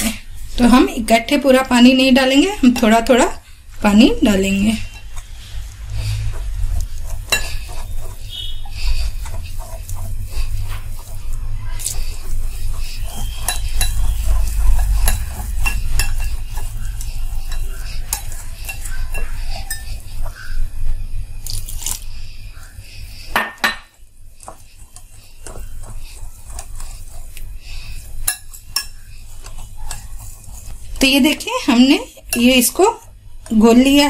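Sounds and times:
whisk clicking against glass bowl: 12.8s - 20.5s.

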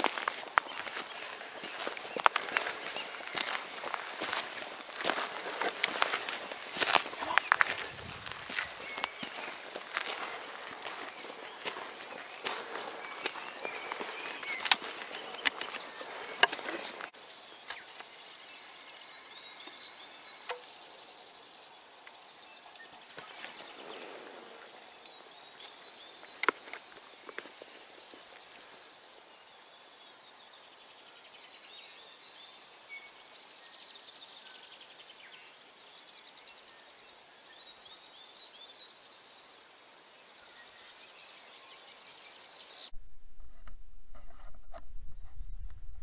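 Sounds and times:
birds singing trills and chirps: 0.0s - 42.9s
low rumble: 43.0s - 46.0s.

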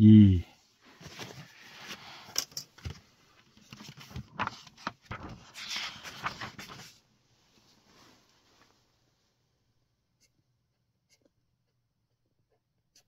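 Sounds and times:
cloth rustling: 5.1s - 9.0s.

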